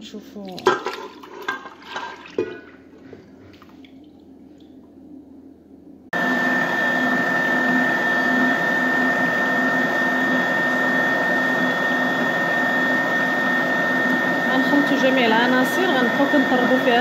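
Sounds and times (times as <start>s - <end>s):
stand mixer motor whine: 6.2s - 17.0s.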